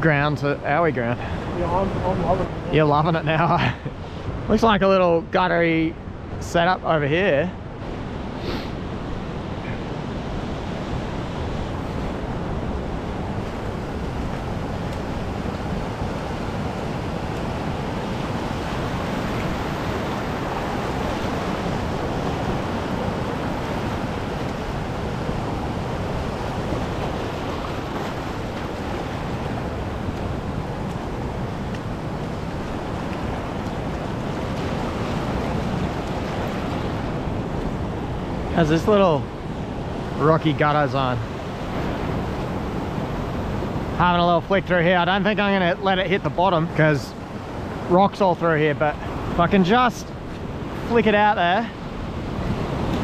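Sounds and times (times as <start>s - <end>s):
surf rushing over rocks: 8.1s - 53.0s
wind on microphone: 51.7s - 53.0s.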